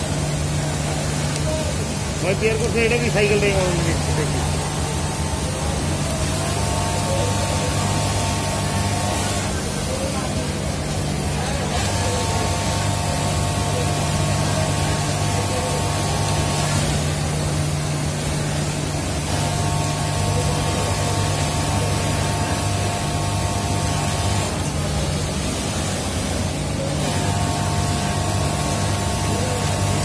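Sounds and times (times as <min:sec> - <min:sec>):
high machine whine: 0:00.0 - 0:30.0
industrial sewing machinery din: 0:00.0 - 0:30.0.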